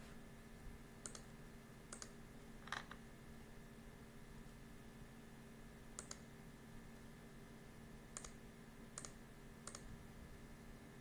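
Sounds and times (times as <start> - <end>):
low steady hum: 0.0 - 11.0
computer mouse clicking: 1.0 - 1.3, 1.9 - 3.0, 6.0 - 6.3, 8.2 - 8.4, 9.0 - 9.9.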